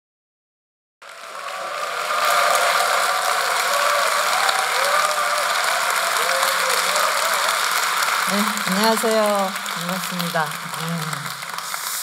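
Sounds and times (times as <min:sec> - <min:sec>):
audience applauding: 0:01.0 - 0:12.0.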